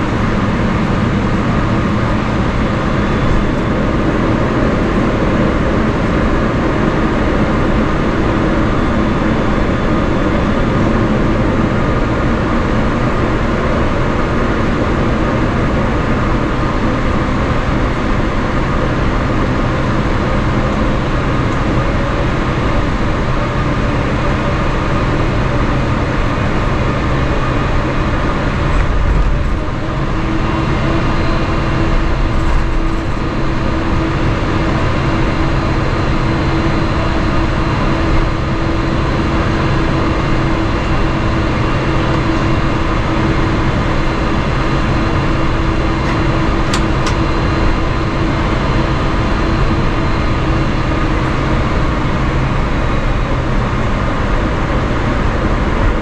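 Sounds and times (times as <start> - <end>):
jet engines rumbling: 0.0 - 56.0
steady hum: 0.0 - 56.0
low bumps: 28.4 - 34.1.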